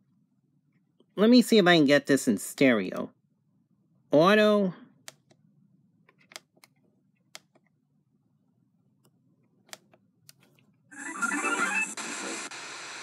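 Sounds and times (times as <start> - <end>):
plastic button clicks: 6.1 - 7.7
radio broadcast sound: 11.0 - 13.0.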